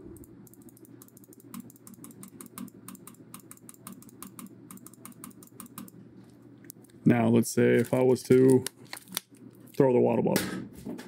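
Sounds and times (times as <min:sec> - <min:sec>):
computer fan hum: 0:00.0 - 0:11.0
computer mouse clicking: 0:00.1 - 0:06.0.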